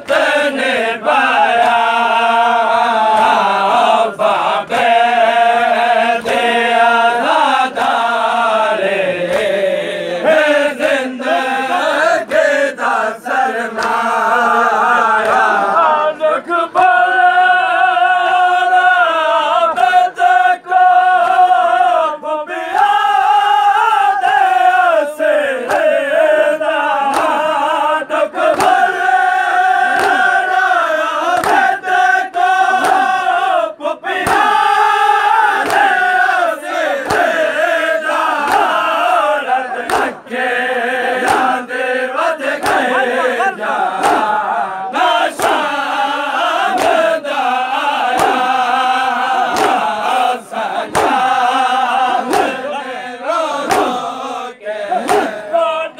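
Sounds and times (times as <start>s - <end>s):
hands slapping chests: 0.0s - 0.3s, 1.1s - 8.4s, 9.2s - 9.7s, 10.3s - 14.4s, 15.0s - 15.7s, 22.7s - 23.0s, 25.6s - 27.8s, 28.4s - 33.4s, 34.1s - 40.3s, 41.0s - 52.8s, 53.4s - 54.2s, 54.8s - 55.5s
men chanting together: 0.0s - 55.9s.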